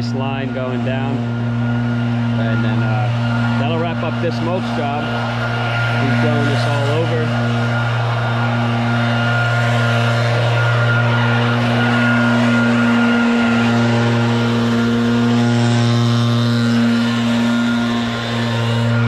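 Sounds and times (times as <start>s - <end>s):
leaf blower running: 0.0s - 19.0s.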